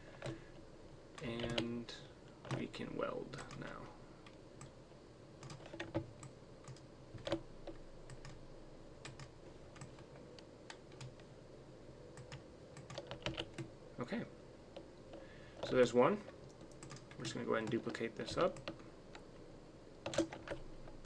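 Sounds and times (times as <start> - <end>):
keyboard and mouse clicks: 0.1 - 0.4, 1.2 - 1.7, 5.4 - 8.4, 9.0 - 11.3, 12.2 - 13.7, 16.5 - 19.2, 20.0 - 21.0.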